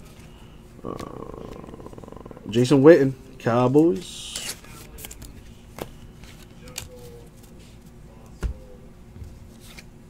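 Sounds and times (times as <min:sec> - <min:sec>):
cards rustling: 0:03.8 - 0:08.3, 0:09.5 - 0:09.9.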